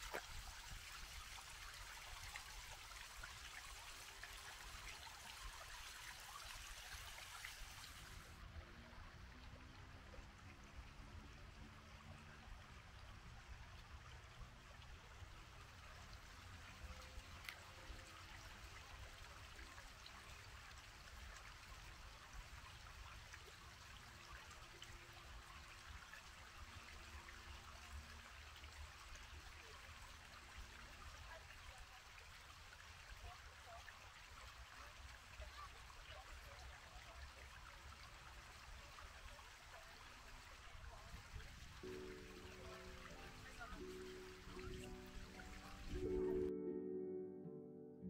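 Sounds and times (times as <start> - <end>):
water flowing: 0.0 - 46.5.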